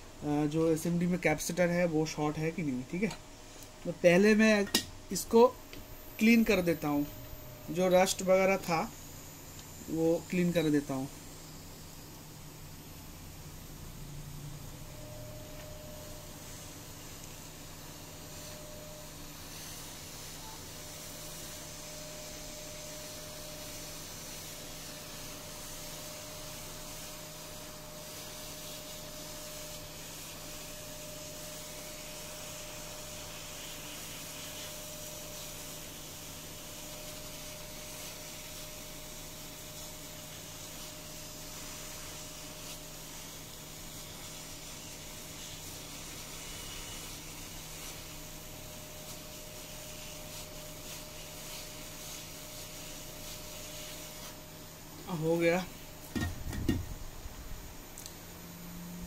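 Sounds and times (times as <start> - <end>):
faint blower tone: 0.0 - 40.3
faint steady hum: 0.0 - 59.0
hot air hissing: 0.0 - 59.0.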